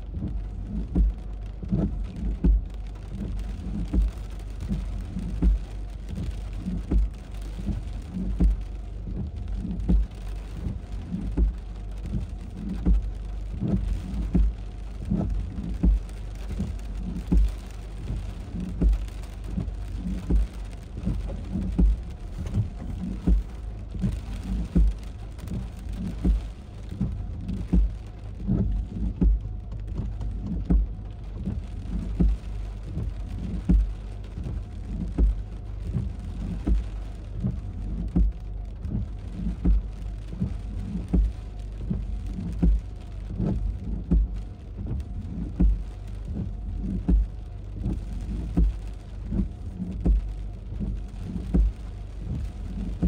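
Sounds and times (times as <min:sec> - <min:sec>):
heavy rain falling: 0:00.0 - 0:53.0.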